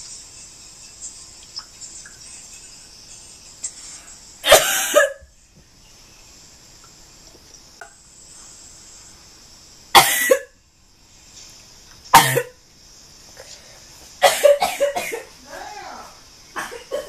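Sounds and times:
woman coughing harshly: 4.5 - 5.2, 10.0 - 10.5, 12.2 - 12.5, 14.2 - 15.3, 16.6 - 17.0.

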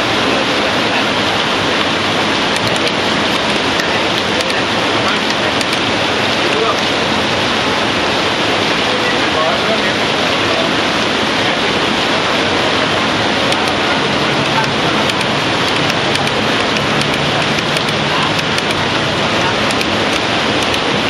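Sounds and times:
heavy rain hiss: 0.0 - 21.0
faint clicks: 5.3 - 6.5, 19.7 - 20.8.

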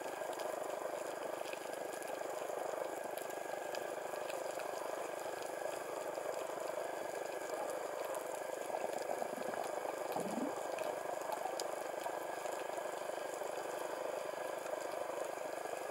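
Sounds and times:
underwater watery hiss: 9.1 - 11.2.

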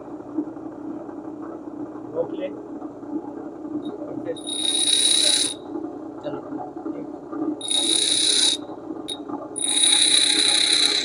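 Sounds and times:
bench grinder humming: 4.4 - 5.6, 7.6 - 8.6, 9.6 - 11.0
high-pitched grinding hiss: 4.4 - 5.6, 7.6 - 8.6, 9.6 - 11.0.

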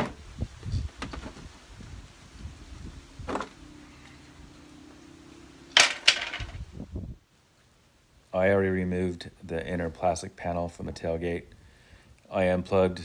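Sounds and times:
low steady hum: 1.5 - 13.0.

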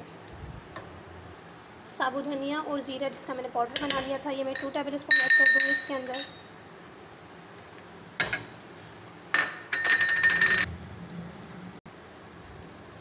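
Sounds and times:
metal spoon clinking on steel: 3.8 - 6.5.

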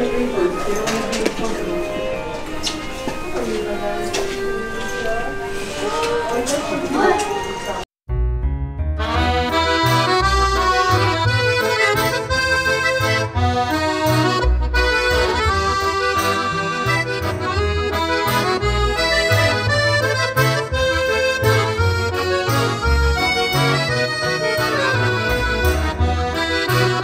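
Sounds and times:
lively accordion music: 0.0 - 6.9, 9.0 - 27.0
bass accompaniment: 8.1 - 27.0.

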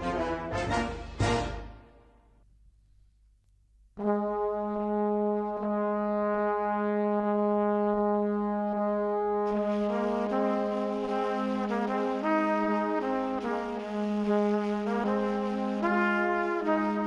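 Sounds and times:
brass music held note: 4.0 - 17.0.

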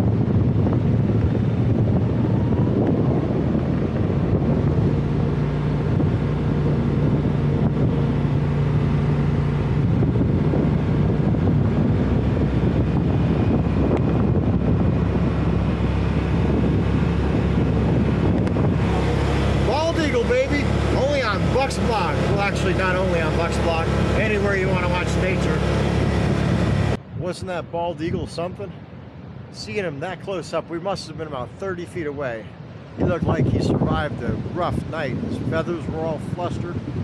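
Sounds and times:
utility vehicle engine running: 0.0 - 27.0
wind buffeting microphone: 0.0 - 37.0.

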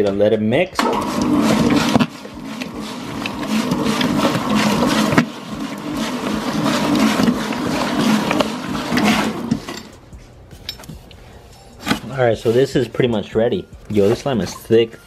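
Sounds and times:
stand mixer motor hum: 0.8 - 9.7.

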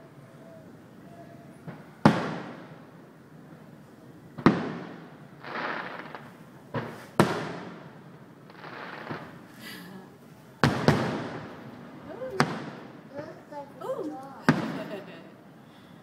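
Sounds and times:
crackling hiss: 0.0 - 16.0
firework shells booming: 1.6 - 2.8, 4.4 - 9.5, 10.6 - 13.2, 14.5 - 15.1.

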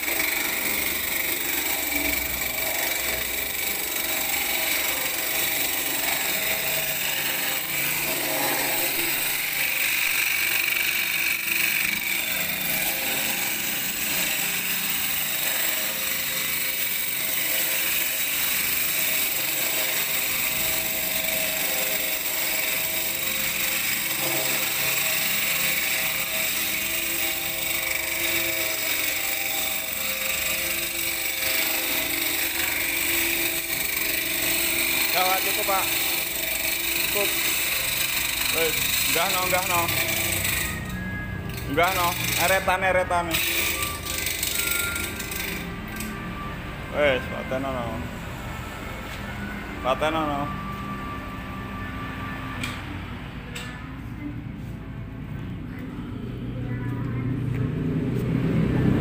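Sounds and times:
concrete saw grinding: 0.0 - 48.8.

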